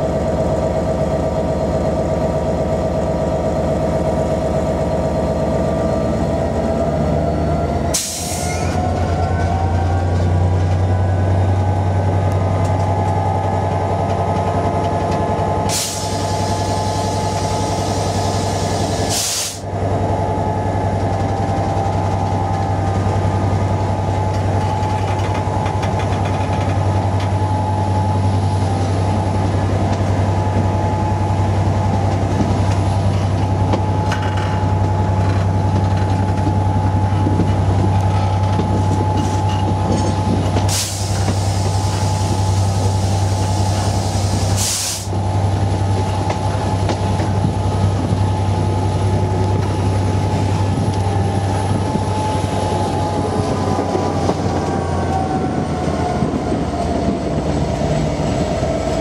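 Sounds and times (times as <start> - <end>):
diesel locomotive engine drone: 0.0 - 59.0.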